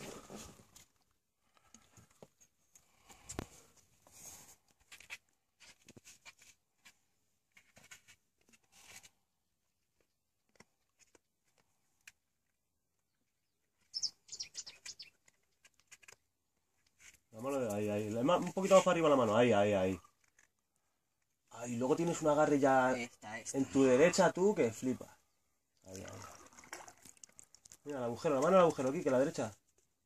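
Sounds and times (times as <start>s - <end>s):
high bird chirps: 13.8s - 15.2s.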